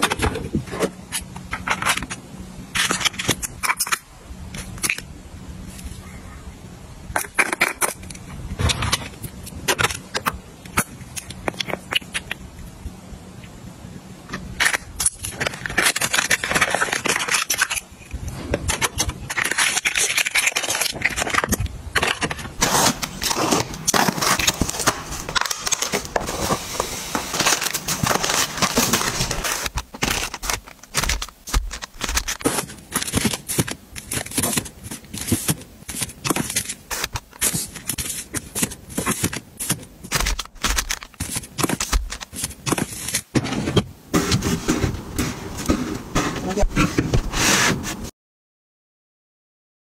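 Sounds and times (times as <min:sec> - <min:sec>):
plastic packs crinkling: 0:15.0 - 0:17.9, 0:18.7 - 0:43.4
cardboard box tearing: 0:22.0 - 0:43.2.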